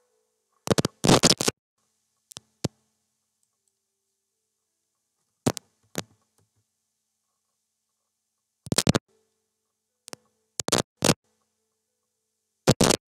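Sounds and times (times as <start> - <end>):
mouse and keyboard clicks: 0.6 - 1.5, 8.7 - 9.0, 10.1 - 11.2.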